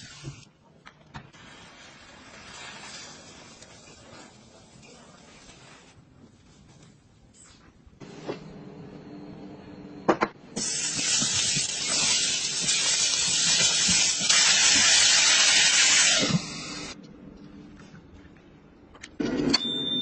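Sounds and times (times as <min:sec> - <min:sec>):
shrimp hissing in a pot: 0:10.6 - 0:17.0.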